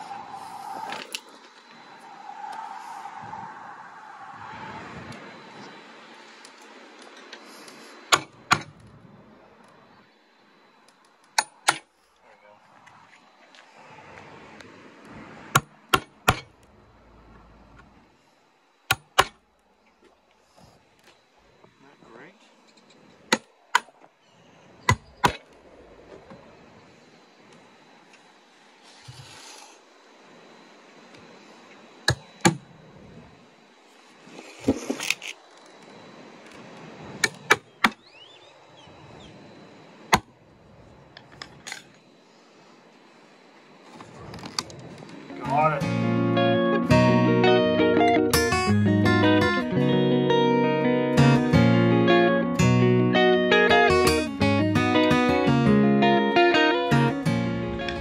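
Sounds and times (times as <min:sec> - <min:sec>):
hammer striking chisel: 0:11.4 - 0:11.8.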